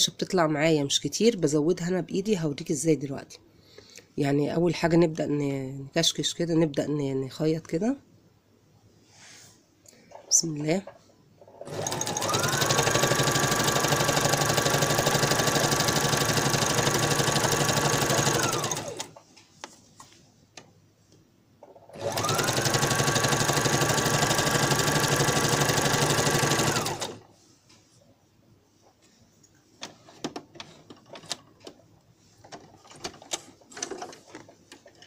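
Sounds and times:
sewing machine running: 11.6s - 19.1s, 21.8s - 27.2s.

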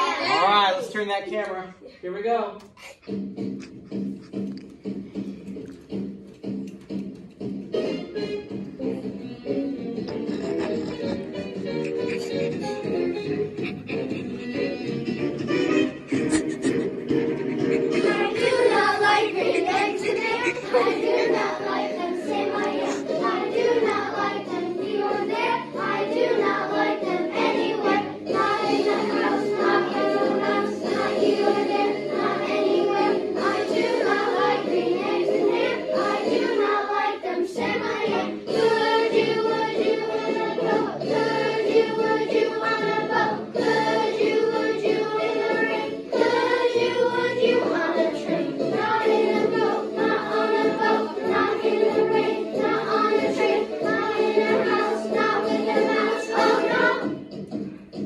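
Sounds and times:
children singing in unison: 0.0s - 0.4s, 16.3s - 57.3s.

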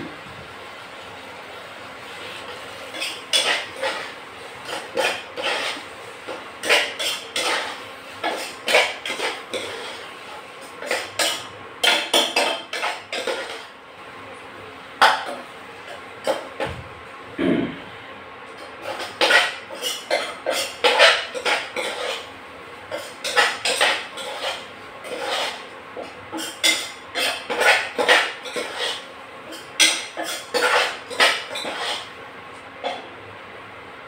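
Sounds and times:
metal spoon scraping saucepan: 2.9s - 5.8s, 6.6s - 10.1s, 10.8s - 13.7s, 18.8s - 22.3s, 22.9s - 32.1s.

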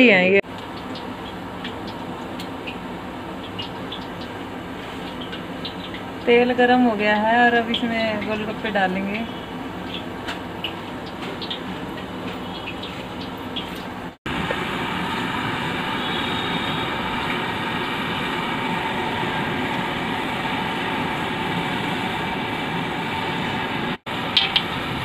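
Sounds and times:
gas burner flame rushing: 14.0s - 25.0s.

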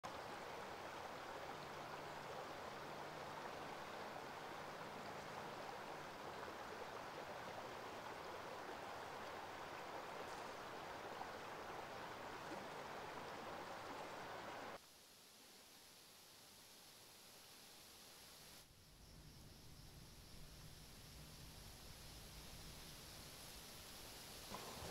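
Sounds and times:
river running over rocks: 0.1s - 14.8s, 23.2s - 24.9s.

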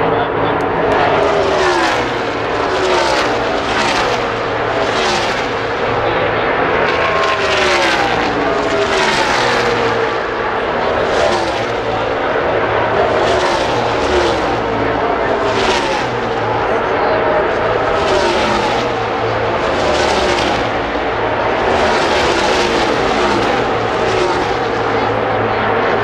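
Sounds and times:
race cars passing at full throttle: 0.0s - 26.0s.

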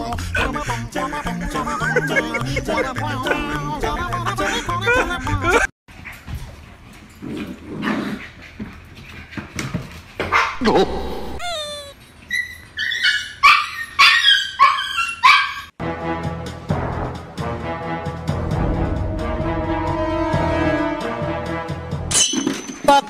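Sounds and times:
background music: 0.0s - 5.7s, 15.8s - 22.3s
puppy yipping: 10.3s - 15.7s
puppy whining: 10.5s - 15.7s.

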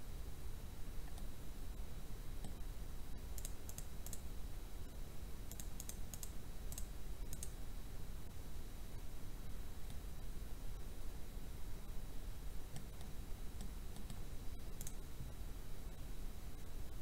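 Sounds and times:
computer mouse clicks: 1.0s - 1.3s, 2.4s - 2.6s, 3.2s - 4.3s, 5.5s - 7.6s, 12.7s - 14.2s, 14.8s - 15.0s.

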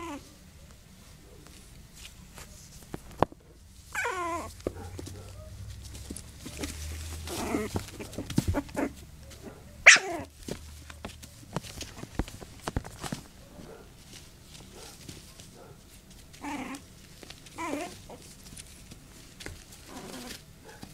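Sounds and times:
small scratches and knocks: 1.4s - 3.6s, 4.4s - 9.6s, 10.3s - 20.9s
puppies whining and yelping: 3.9s - 5.6s, 6.5s - 10.3s, 16.4s - 16.9s, 17.5s - 18.3s.

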